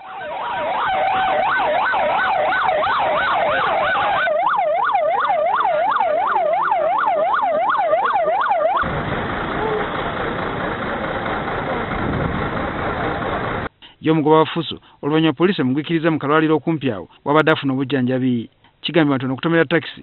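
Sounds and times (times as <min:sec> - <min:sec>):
crowd noise: 0:00.0 - 0:04.4, 0:09.3 - 0:13.7
emergency sirens yelping: 0:00.0 - 0:13.7.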